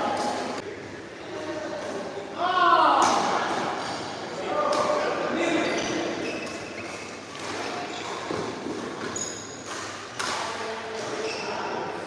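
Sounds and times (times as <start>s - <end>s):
shoes squeaking on court: 5.5s - 9.9s, 11.0s - 11.7s
racket hitting shuttlecock: 7.3s - 11.2s.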